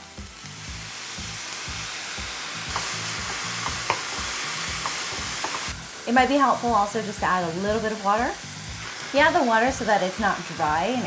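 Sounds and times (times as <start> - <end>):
bean sprouts sizzling in a skillet: 0.0 - 11.0
wooden spoon clicking on pan: 3.6 - 4.1.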